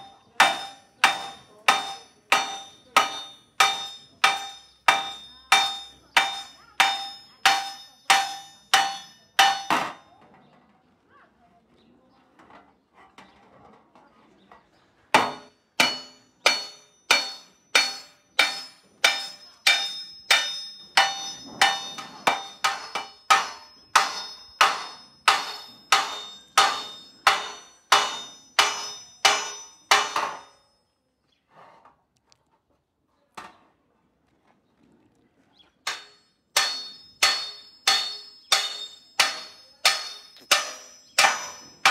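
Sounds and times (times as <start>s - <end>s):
hammer striking copper: 0.0s - 10.1s, 15.2s - 30.7s, 35.9s - 41.9s.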